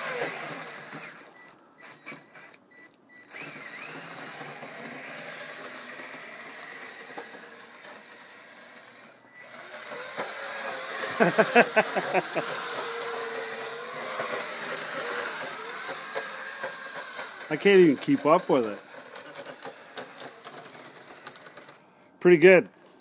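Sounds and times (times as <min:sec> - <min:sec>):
electric motor whirring: 0:00.0 - 0:21.9
person's voice: 0:17.5 - 0:18.8, 0:22.2 - 0:22.7.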